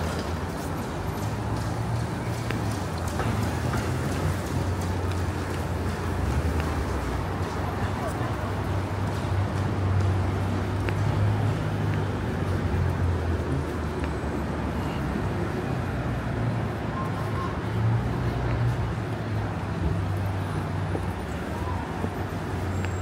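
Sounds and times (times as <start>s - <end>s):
traffic noise: 0.0s - 23.0s.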